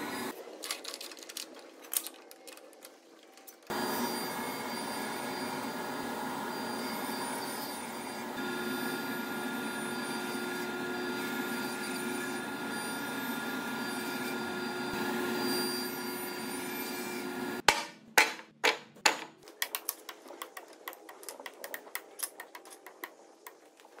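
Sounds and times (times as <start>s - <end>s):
table saw cutting wood: 3.7s - 17.6s.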